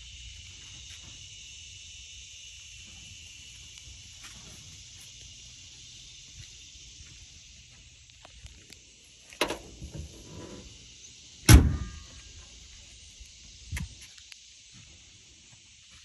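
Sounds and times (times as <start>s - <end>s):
crickets chirping: 0.0s - 16.0s
car door slamming: 11.5s - 12.0s.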